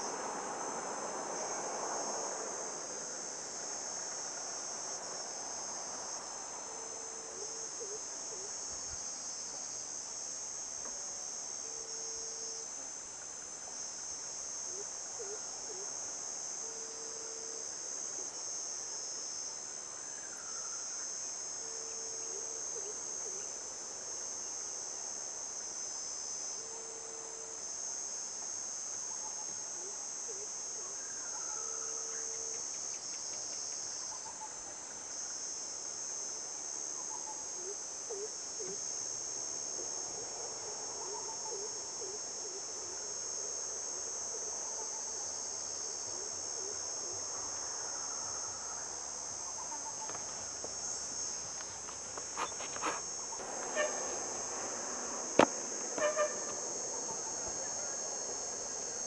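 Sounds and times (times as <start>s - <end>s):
insect chorus shrilling: 19.6s - 24.8s, 29.1s - 35.3s, 46.6s - 59.0s.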